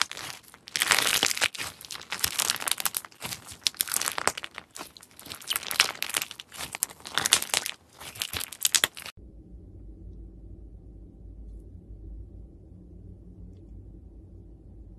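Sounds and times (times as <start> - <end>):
slime crackling when squeezed: 0.0 - 9.2.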